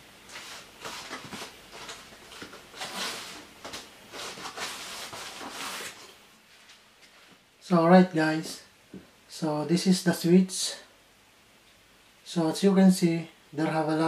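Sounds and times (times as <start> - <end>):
scraping and rubbing plastic: 0.3 - 6.2.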